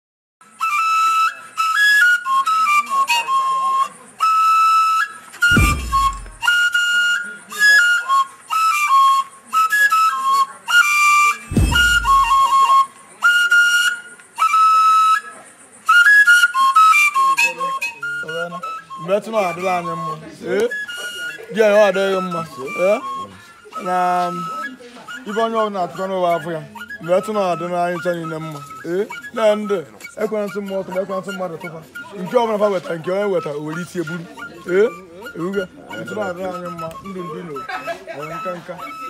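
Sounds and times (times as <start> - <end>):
flute melody: 0.4 - 39.0
deep thuds: 5.5 - 6.5, 11.5 - 12.5.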